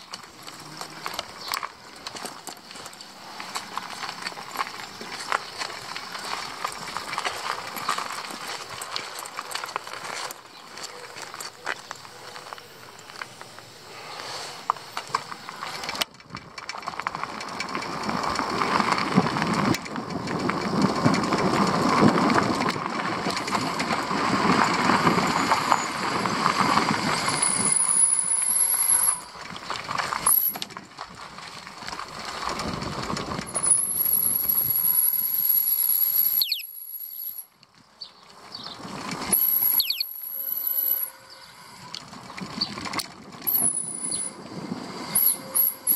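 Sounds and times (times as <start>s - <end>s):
bicycle rattling over rough ground: 0.0s - 45.9s
bicycle brake squeal: 25.0s - 26.3s, 27.1s - 29.4s, 33.6s - 37.5s, 39.3s - 42.8s, 43.5s - 45.9s.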